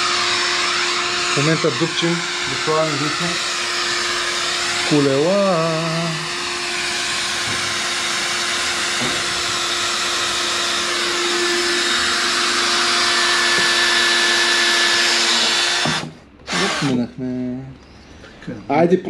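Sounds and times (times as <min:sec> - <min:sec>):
cordless drill boring: 0:00.0 - 0:17.0.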